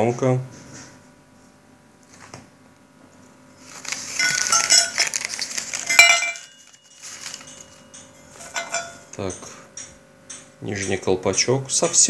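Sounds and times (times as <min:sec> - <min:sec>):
packing paper rustling: 0:03.6 - 0:09.0
light metallic clinks: 0:05.8 - 0:11.0.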